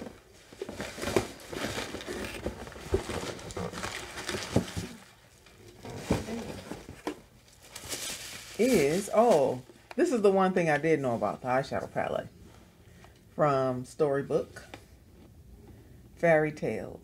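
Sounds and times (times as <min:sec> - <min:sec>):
cardboard packaging rustling: 0:00.0 - 0:10.3.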